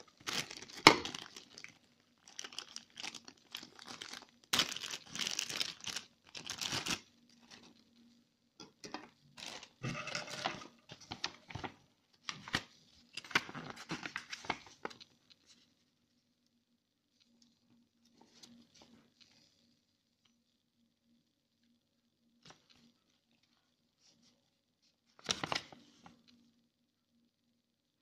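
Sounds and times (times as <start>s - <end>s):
plastic bag crinkling: 0.0s - 8.0s, 9.3s - 15.5s.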